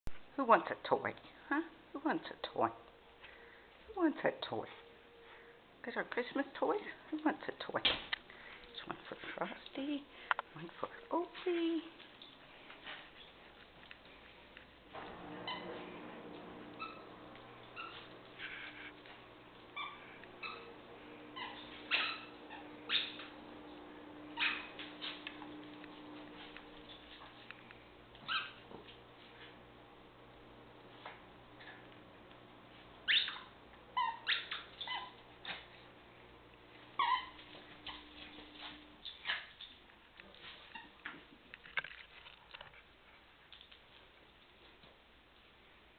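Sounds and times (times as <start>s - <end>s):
squeaky dog toy squeaking: 21.4s - 23.2s, 33.1s - 35.1s, 37.0s - 38.0s.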